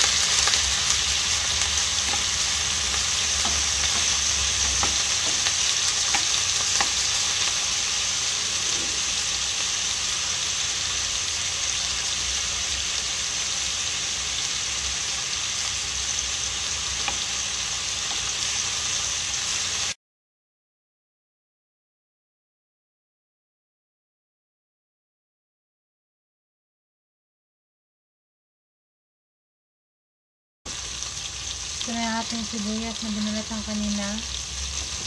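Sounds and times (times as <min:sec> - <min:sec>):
chicken sizzling in frying pan: 0:00.0 - 0:20.0, 0:30.7 - 0:35.0
wooden spatula tapping and scraping: 0:02.0 - 0:07.1.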